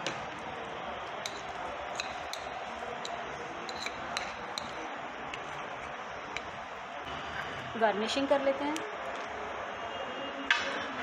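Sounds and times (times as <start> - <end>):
metal spoon clicking on glass bowl: 2.0 - 4.8.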